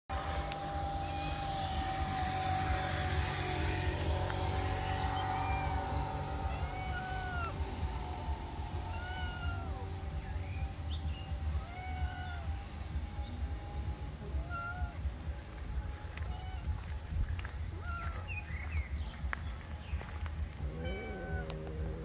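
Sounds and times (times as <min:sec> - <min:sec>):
cat meowing: 0:01.0 - 0:01.8, 0:05.0 - 0:07.7, 0:08.8 - 0:10.0, 0:11.5 - 0:12.6, 0:14.4 - 0:15.2, 0:16.0 - 0:17.1, 0:17.7 - 0:18.4, 0:20.6 - 0:22.0.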